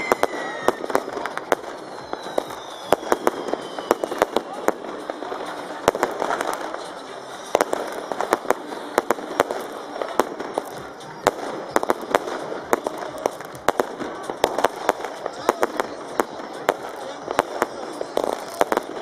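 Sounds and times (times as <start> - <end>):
fireworks bangs: 0.0 - 19.0
fireworks crackle: 0.0 - 19.0.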